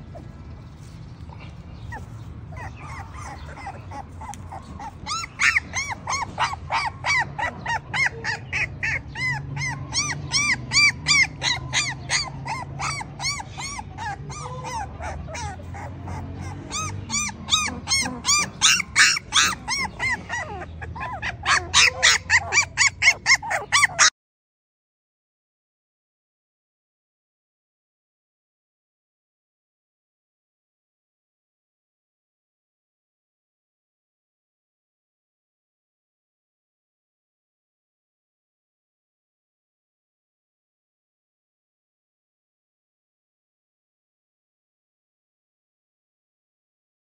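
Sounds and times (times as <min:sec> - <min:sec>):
puppies squealing and whining: 0:00.1 - 0:24.1.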